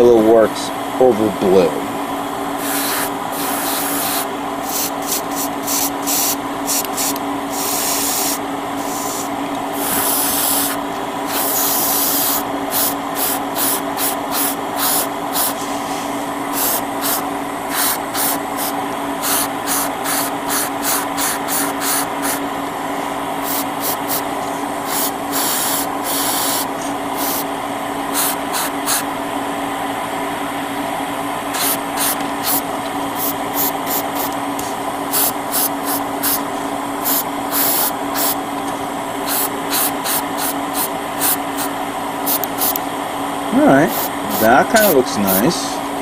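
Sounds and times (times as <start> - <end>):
steady motor hum: 0.0 - 46.0
airbrush spraying hissing bursts: 2.6 - 22.5, 23.4 - 27.5, 28.1 - 29.1, 31.5 - 32.6, 33.2 - 34.4, 35.1 - 36.4, 37.0 - 38.4, 39.2 - 42.8, 43.8 - 45.0.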